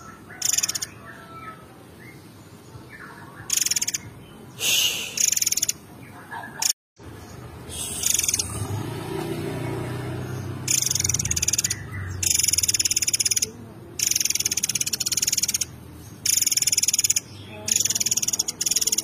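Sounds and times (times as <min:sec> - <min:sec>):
songbird buzzy rattling trills: 0:00.0 - 0:01.1, 0:03.5 - 0:04.2, 0:05.0 - 0:05.8, 0:06.6 - 0:08.8, 0:09.6 - 0:19.0.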